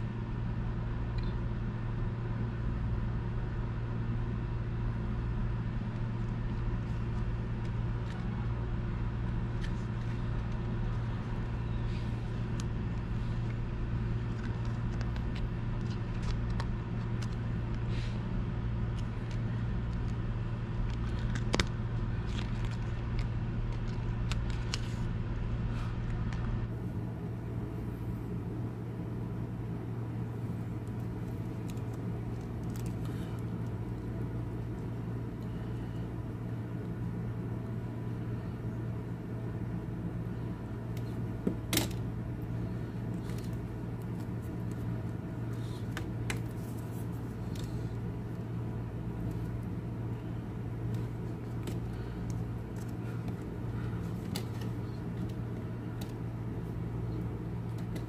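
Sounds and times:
low background hum: 0:00.0 - 0:58.0.

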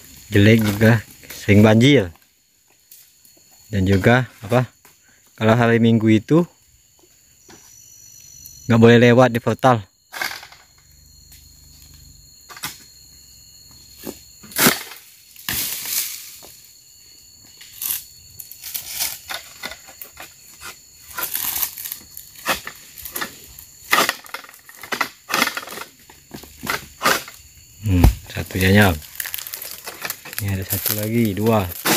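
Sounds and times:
dry fronds cracking and snapping: 0:29.0 - 0:31.9.

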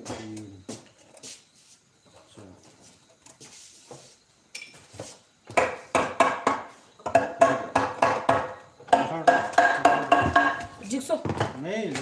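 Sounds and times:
hammer striking wood: 0:05.5 - 0:10.7.

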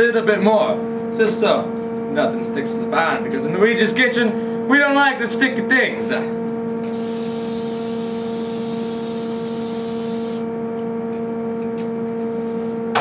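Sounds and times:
electrical hum: 0:00.0 - 0:13.0
aerosol spray hissing: 0:06.9 - 0:10.4.

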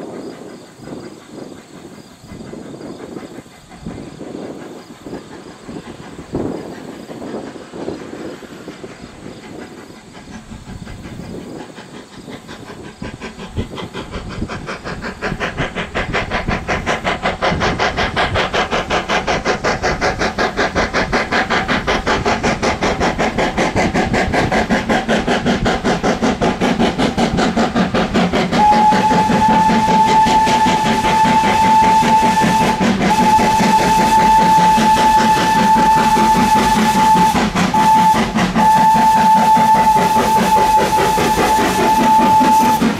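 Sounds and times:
steam locomotive chuffing: 0:00.0 - 0:42.9
steam whistle blasts: 0:28.6 - 0:42.9.

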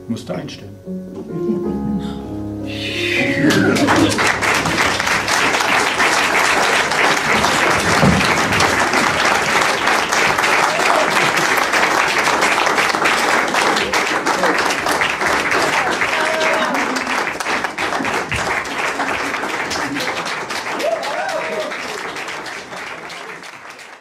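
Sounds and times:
keyboard chord: 0:00.0 - 0:07.9
audience applause: 0:03.1 - 0:24.0.

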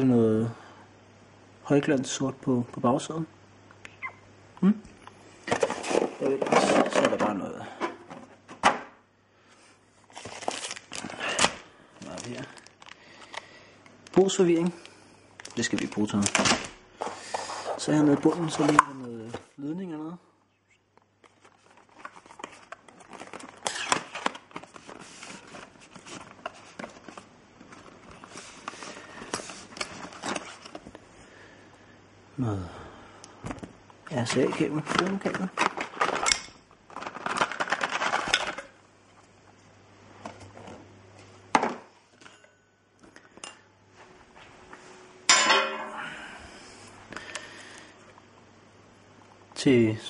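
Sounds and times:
hard objects knocking and clattering: 0:05.5 - 0:08.9
cardboard rustling and crackling: 0:10.1 - 0:13.0, 0:21.2 - 0:31.0, 0:34.2 - 0:36.2, 0:36.9 - 0:38.6.

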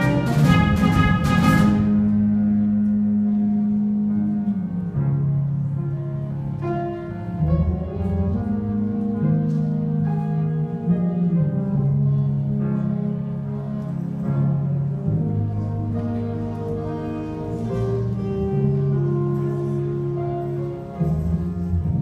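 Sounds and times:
concert band playing: 0:00.0 - 0:22.0.

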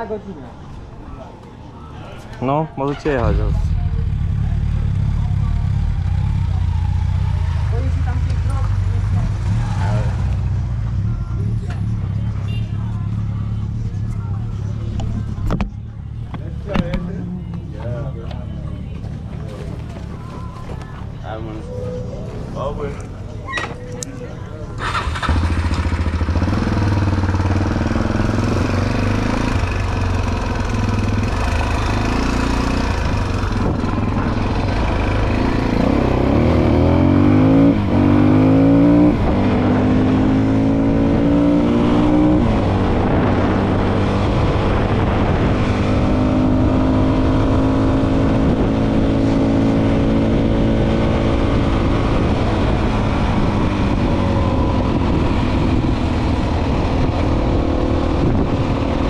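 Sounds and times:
motorcycle engine revving: 0:03.1 - 0:12.6, 0:24.8 - 0:59.0.

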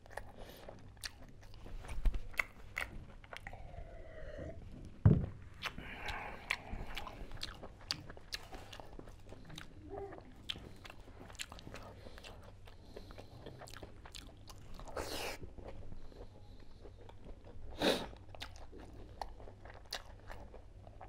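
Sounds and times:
wet mouth chewing: 0:00.0 - 0:04.6, 0:05.5 - 0:21.0.

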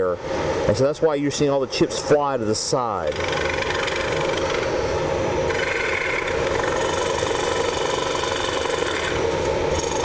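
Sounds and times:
tool scraping spinning bowl: 0:03.0 - 0:04.7, 0:05.5 - 0:10.0
wood lathe humming: 0:03.1 - 0:04.7, 0:05.5 - 0:10.0.

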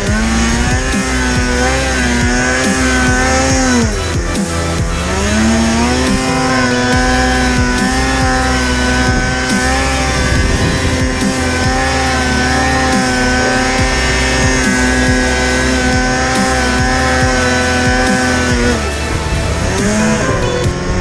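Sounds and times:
snowmobile engine revving: 0:00.0 - 0:21.0.

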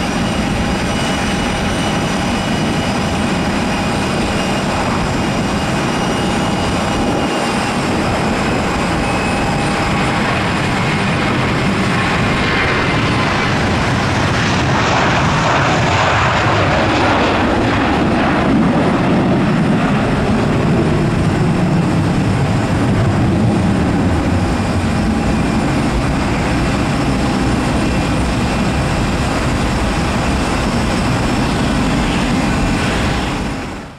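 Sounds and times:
jet engines whining: 0:00.0 - 0:33.9.

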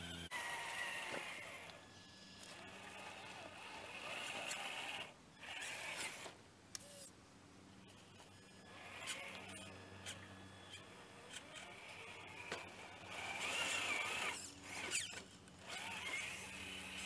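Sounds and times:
toy car electric motor whining: 0:00.0 - 0:07.1, 0:07.8 - 0:17.0.

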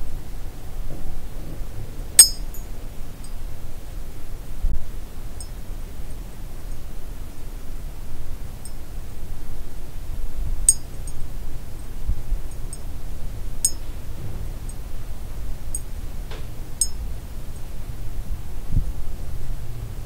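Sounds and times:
sharp high-pitched clinks: 0:02.2 - 0:02.6.

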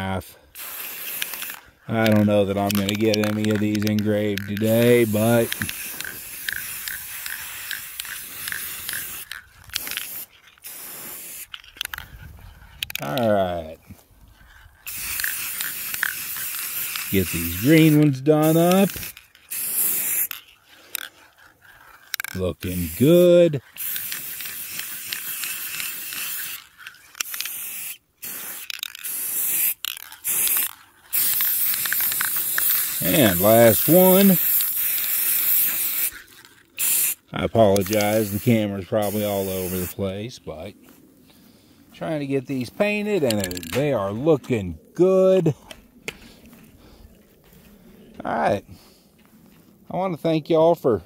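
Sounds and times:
aerosol spray can hissing: 0:00.6 - 0:11.6, 0:14.8 - 0:20.4, 0:21.8 - 0:36.2, 0:36.8 - 0:40.0
faint regular ticking: 0:00.6 - 0:12.1, 0:14.4 - 0:23.0, 0:28.3 - 0:38.6.

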